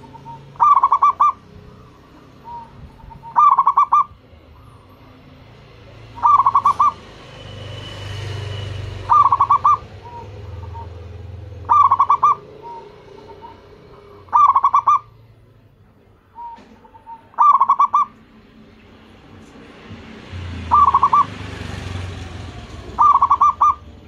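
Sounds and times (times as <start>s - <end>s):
dove cooing: 0.0s - 7.1s, 8.9s - 15.4s, 16.3s - 18.2s, 20.4s - 24.0s.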